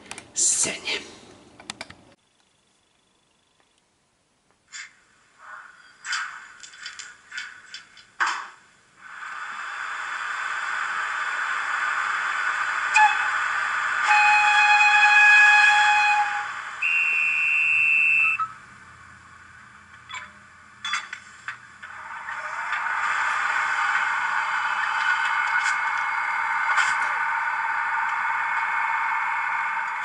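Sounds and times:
model locomotive steam hiss: 9.0 - 18.4
chord whistle signal: 14.0 - 18.6
single high whistle tone: 16.8 - 18.6.

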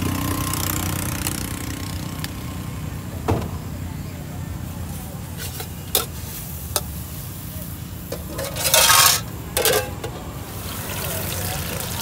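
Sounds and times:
metal spatula scraping a wok: 5.3 - 7.4, 8.0 - 10.2.

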